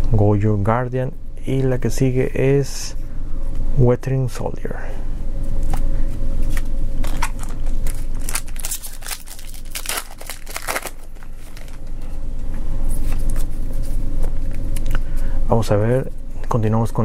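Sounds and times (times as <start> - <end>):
foil wrapper crinkling and tearing: 7.0 - 11.9.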